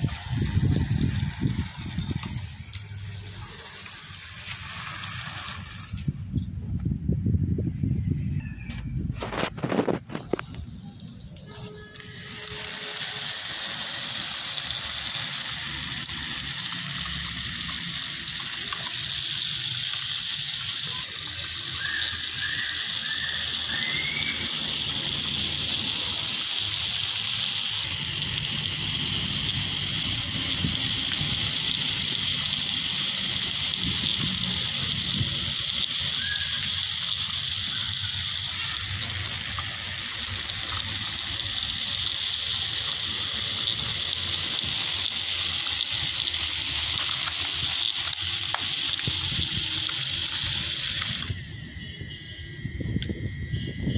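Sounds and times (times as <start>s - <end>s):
small motor whirring: 11.5s - 53.9s.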